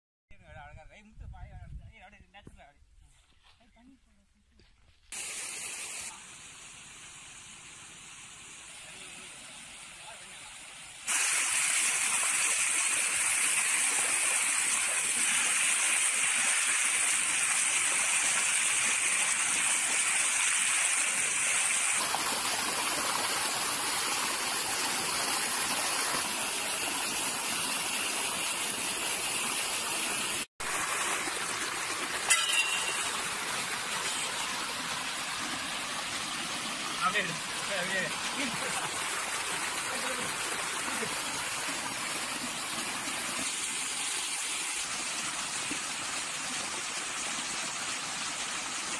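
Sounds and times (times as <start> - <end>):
water gushing and splashing: 7.1 - 48.9.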